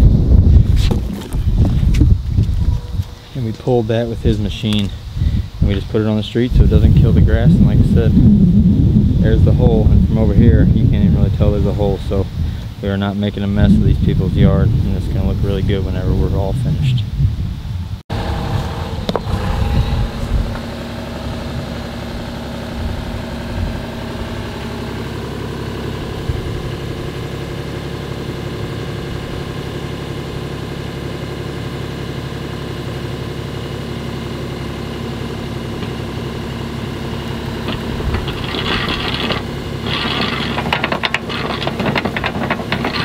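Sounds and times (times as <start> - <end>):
engine running steadily: 0.0 - 43.0
boring rod rattling grind: 37.5 - 43.0.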